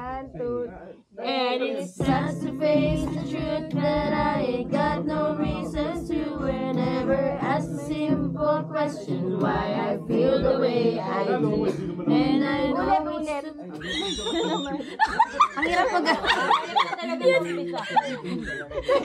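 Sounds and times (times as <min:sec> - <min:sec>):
group singing: 0:01.2 - 0:13.5
strummed acoustic guitar: 0:01.9 - 0:13.4.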